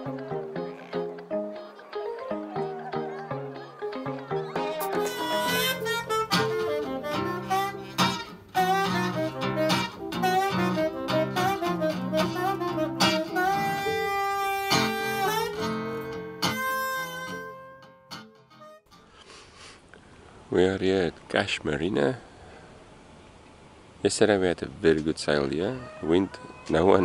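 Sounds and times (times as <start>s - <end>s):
acoustic guitar chords: 0.0s - 18.8s
saxophone melody: 0.0s - 18.9s.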